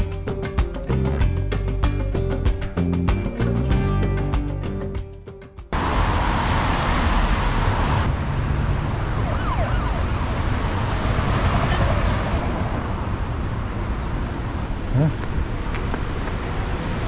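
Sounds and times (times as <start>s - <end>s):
city street traffic: 0.0s - 17.0s
emergency siren wailing: 8.6s - 12.0s.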